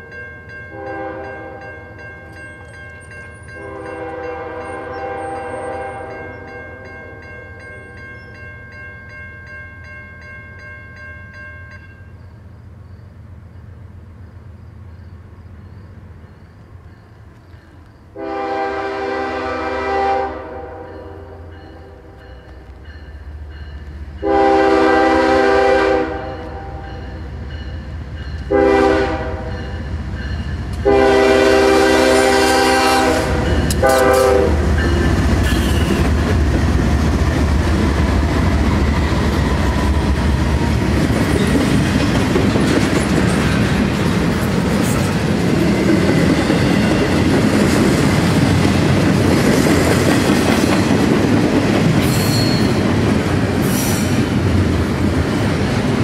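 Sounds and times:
locomotive horn blasts: 0.7s - 1.7s, 3.5s - 7.2s, 18.2s - 22.2s, 24.2s - 27.0s, 28.4s - 29.7s, 30.8s - 36.1s
heavy locomotive engine rumble: 12.3s - 56.0s
train cars clickety-clack on rails: 20.9s - 56.0s.

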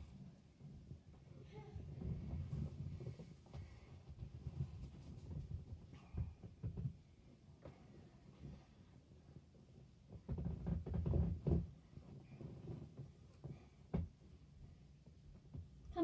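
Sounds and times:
dull thumps and knocks: 2.0s - 7.0s.

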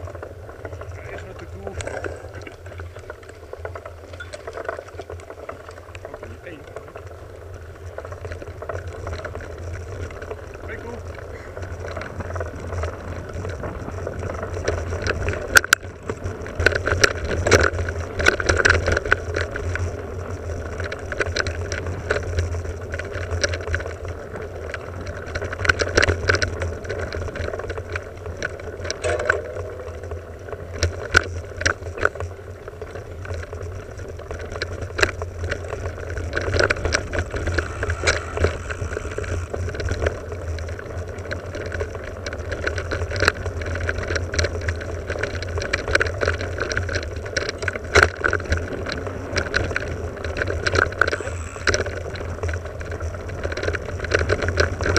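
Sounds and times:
bike clicking and rattling: 0.0s - 54.9s
tyre and wind noise: 0.0s - 54.9s.

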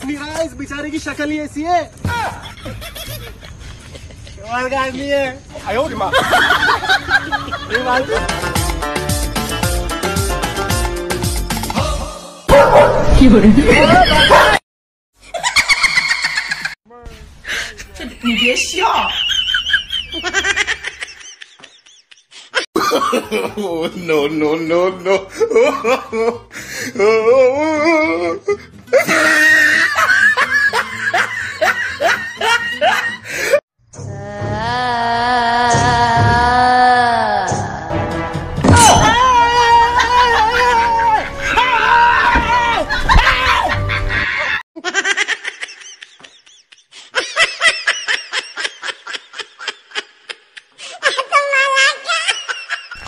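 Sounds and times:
loud human laughter: 2.3s - 4.4s, 6.1s - 8.4s, 13.6s - 14.6s, 15.3s - 16.8s, 18.3s - 26.4s, 28.9s - 33.2s, 39.7s - 53.0s
music: 7.7s - 12.5s, 26.5s - 36.6s, 37.4s - 44.4s.

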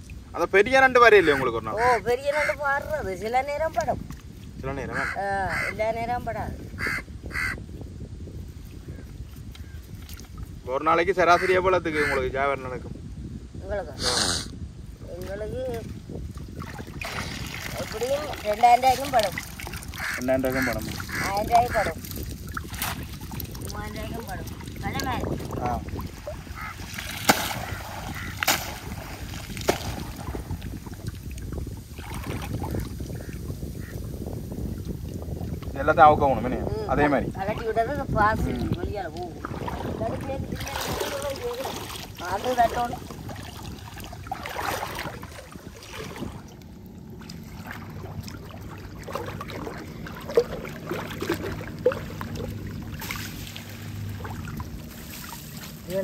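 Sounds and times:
wind on microphone: 0.0s - 56.0s
water sloshing around legs: 1.3s - 7.0s, 8.5s - 10.6s, 15.1s - 34.0s, 36.9s - 56.0s
small splashes: 9.3s - 10.6s, 15.1s - 33.9s, 37.0s - 56.0s
low steady hum: 43.0s - 55.9s.

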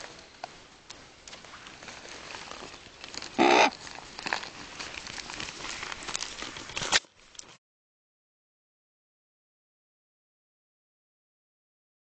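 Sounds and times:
clicks and scuffs on ground: 0.0s - 7.6s
crow cawing: 3.4s - 3.8s.

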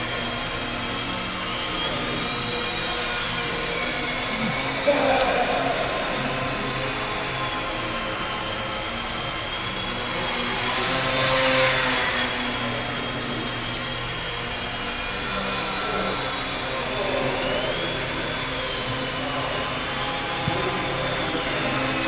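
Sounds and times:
model airplane motors whining: 0.0s - 22.0s.

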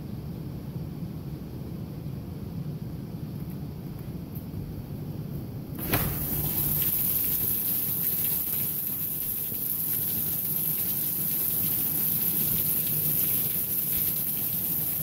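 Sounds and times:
sliding glass door opening: 5.7s - 9.9s
rain falling on concrete: 5.8s - 15.0s.

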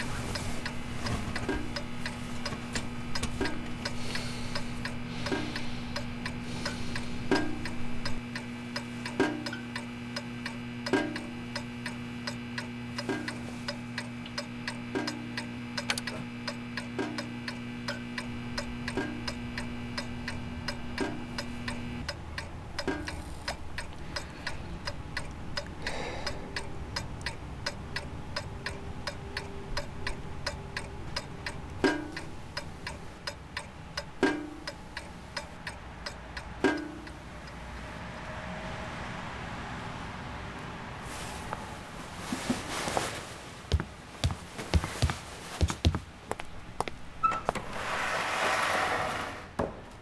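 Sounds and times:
clock ticking: 0.0s - 37.8s
low steady hum: 0.0s - 38.4s.

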